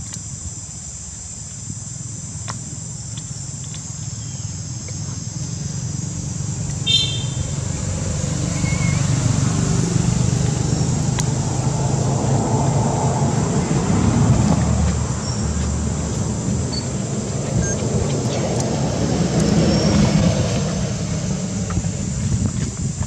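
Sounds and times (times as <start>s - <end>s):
insects droning: 0.0s - 23.0s
vehicle engine hum: 0.0s - 23.0s
brief high squeak: 8.5s - 9.0s.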